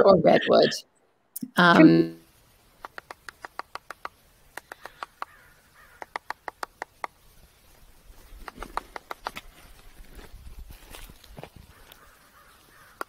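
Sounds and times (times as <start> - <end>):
bird pecking at wood: 2.8 - 7.2, 8.4 - 9.6.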